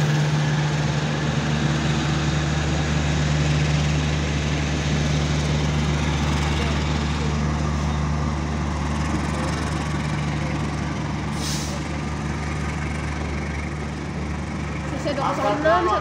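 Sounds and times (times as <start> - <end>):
short hiss: 11.3 - 11.8.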